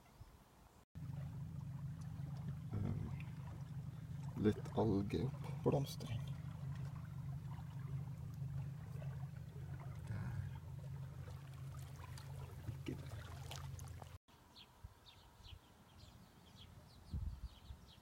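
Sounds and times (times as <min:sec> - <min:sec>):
faint trickling water: 0:01.0 - 0:14.2
low steady rumble: 0:01.0 - 0:14.2.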